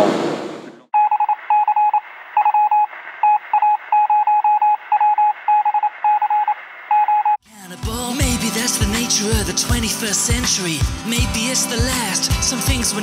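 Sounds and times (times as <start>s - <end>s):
morse code beeps: 1.0s - 7.4s.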